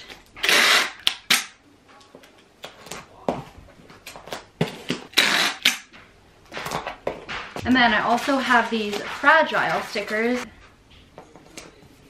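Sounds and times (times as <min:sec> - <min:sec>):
packing tape ripping: 0:05.0 - 0:06.0.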